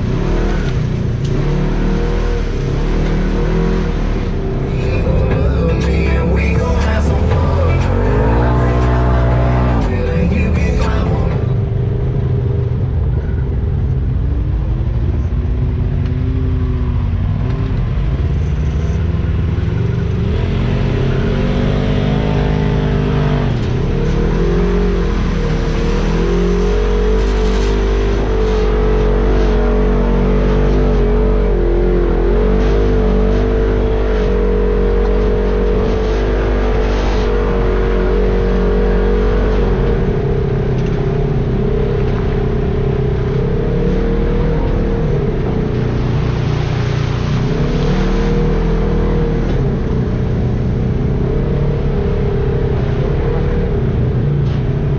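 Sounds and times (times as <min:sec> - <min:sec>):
off-road vehicle engine revving: 0:00.0 - 0:54.9.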